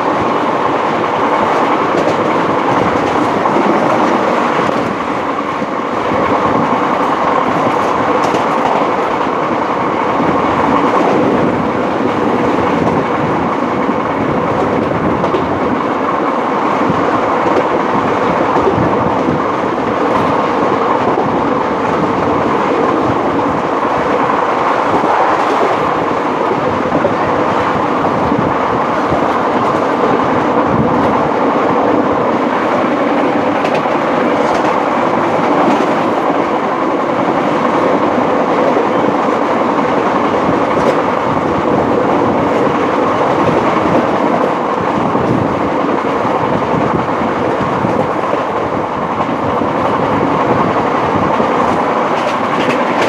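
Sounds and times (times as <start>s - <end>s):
train rumble inside coach: 0.0s - 53.0s.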